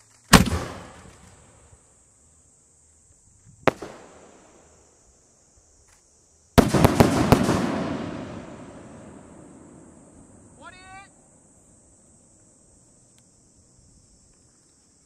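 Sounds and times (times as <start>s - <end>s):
firework crack: 0.0s - 1.9s, 3.4s - 5.0s, 5.8s - 10.8s
firework launch bang: 0.3s - 1.6s, 3.6s - 4.6s, 6.6s - 10.2s
crackling firework bangs: 0.3s - 1.8s, 3.6s - 4.8s, 6.6s - 10.6s.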